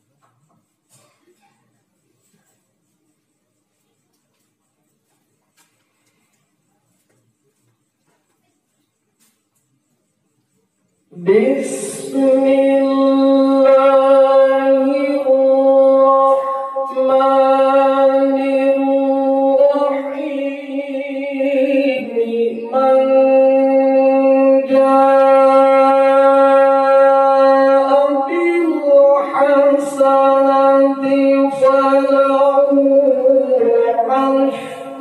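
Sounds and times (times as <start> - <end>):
man reciting in melodic chant: 11.1 - 35.0.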